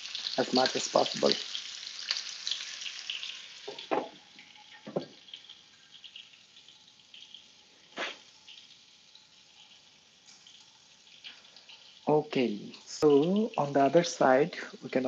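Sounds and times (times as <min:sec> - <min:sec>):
fish sizzling in a frying pan: 0:00.0 - 0:15.0
glass lid knocking on pan: 0:03.7 - 0:04.1.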